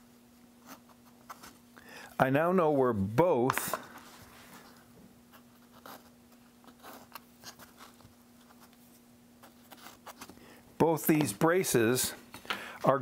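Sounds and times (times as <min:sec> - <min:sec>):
faint steady hum: 0:00.0 - 0:13.0
marker pen scratching: 0:05.3 - 0:08.7.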